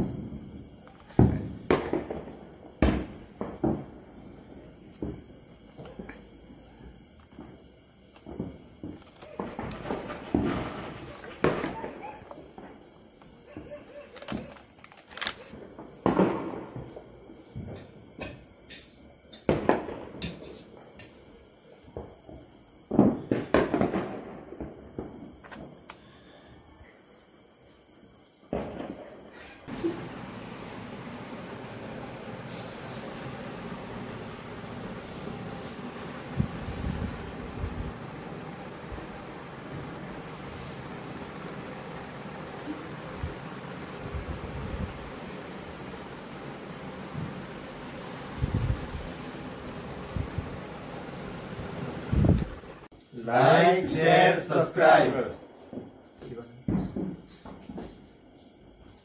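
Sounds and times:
crickets chirping: 0:00.0 - 0:59.0
loud bangs and pops: 0:01.1 - 0:04.0, 0:08.2 - 0:13.4, 0:14.2 - 0:16.9, 0:19.4 - 0:20.4, 0:22.9 - 0:25.3, 0:29.7 - 0:52.9.

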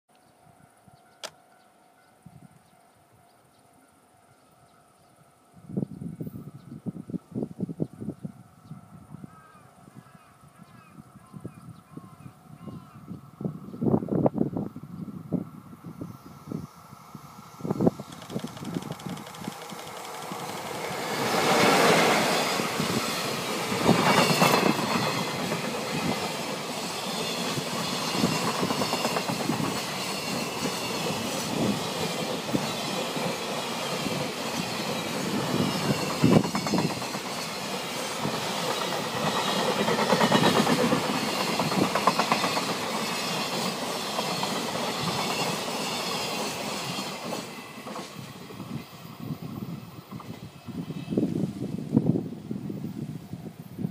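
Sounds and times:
train passing rumble: 0:12.1 - 0:53.9
wheels clacking over rail joints: 0:18.0 - 0:48.3.

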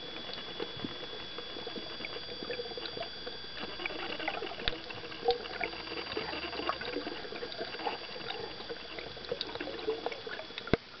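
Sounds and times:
faint high whine: 0:00.0 - 0:11.0
underwater clicks and pops: 0:00.2 - 0:08.4.

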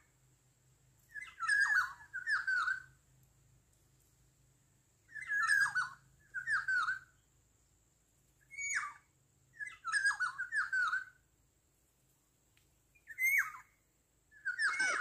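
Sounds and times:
oriole fluty whistled calls: 0:01.1 - 0:03.0, 0:05.0 - 0:07.2, 0:08.4 - 0:11.2, 0:13.0 - 0:15.0.

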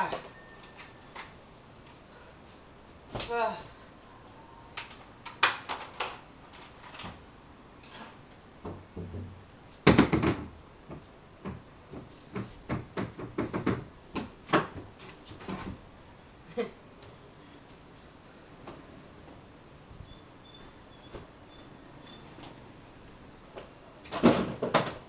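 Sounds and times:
woven mat knocking and rattling: 0:08.6 - 0:15.8
plastic laundry basket thudding: 0:24.1 - 0:25.0.

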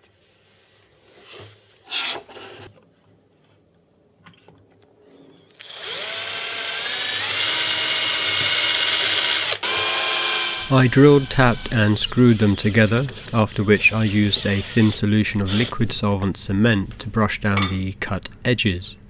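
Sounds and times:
cordless drill boring into acrylic: 0:05.5 - 0:15.8.

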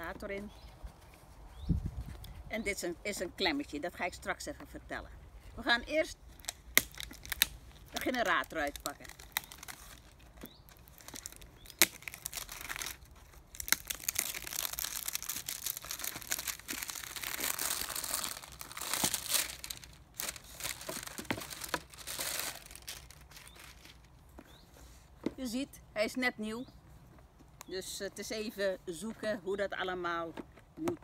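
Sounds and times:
plastic packaging crinkling: 0:06.2 - 0:24.2.

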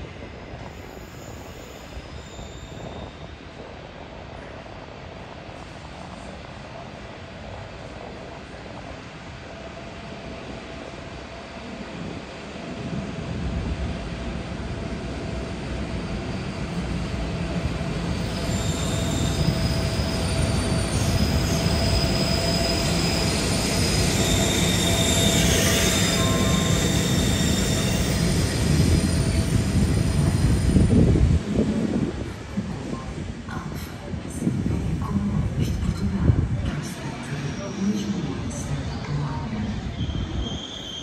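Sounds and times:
train wheel squeal: 0:00.0 - 0:03.8, 0:15.9 - 0:31.2, 0:37.0 - 0:41.0
train rumbling: 0:00.0 - 0:41.0.

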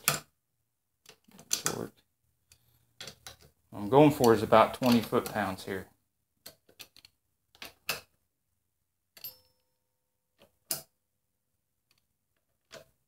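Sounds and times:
metallic tool clink: 0:09.2 - 0:09.7.

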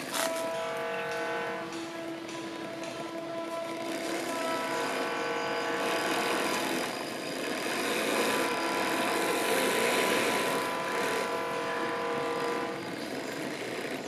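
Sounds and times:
hydraulic pump whine: 0:00.0 - 0:14.0.

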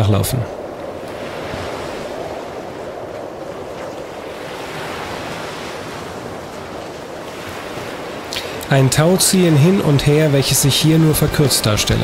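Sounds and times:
surf breaking on beach: 0:00.0 - 0:12.0
wind buffeting microphone: 0:00.0 - 0:12.0.

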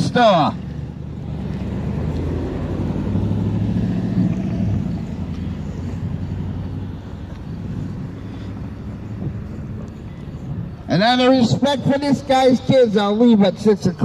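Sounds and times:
vehicle passing by: 0:00.0 - 0:10.9.

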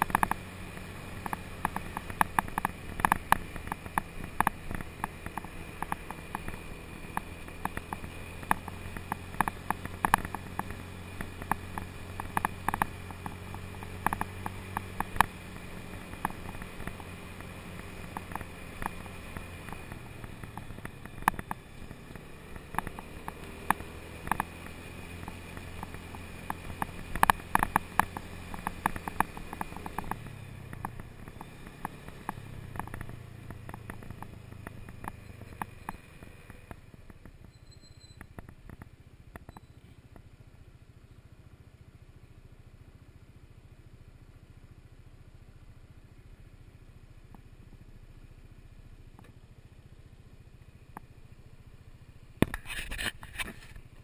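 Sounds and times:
sharp clicks and rattles: 0:00.0 - 0:00.4, 0:01.1 - 0:21.9, 0:22.5 - 0:40.2
scooter engine running: 0:00.0 - 0:54.0.

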